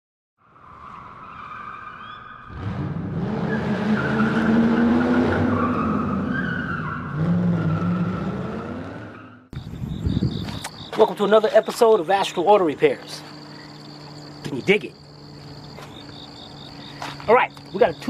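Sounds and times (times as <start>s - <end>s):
tires squealing: 0.5s - 18.0s
car engine revving: 2.5s - 9.6s.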